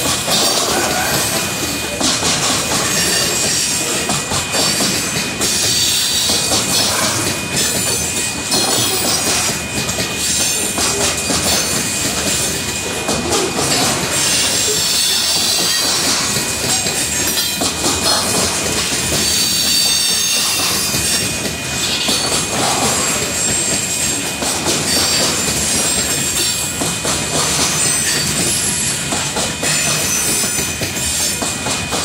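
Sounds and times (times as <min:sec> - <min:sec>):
train wheels rumbling on rails: 0:00.0 - 0:32.0
high wheel squeal: 0:02.8 - 0:09.5, 0:13.7 - 0:16.1, 0:19.1 - 0:24.2, 0:27.5 - 0:31.4.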